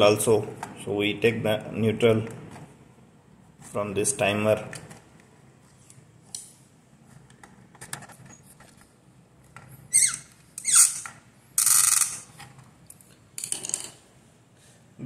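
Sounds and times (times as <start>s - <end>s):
short squeaks falling in pitch: 9.9s - 12.2s.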